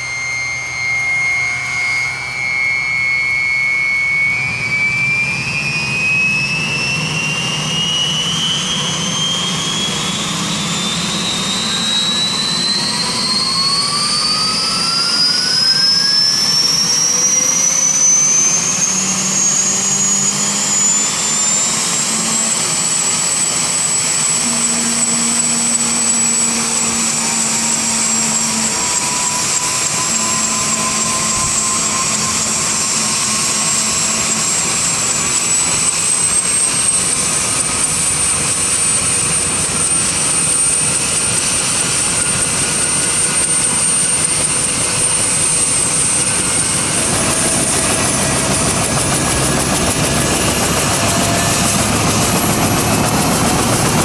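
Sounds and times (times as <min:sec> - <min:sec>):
high-pitched motor whine: 0:00.0 - 0:54.0.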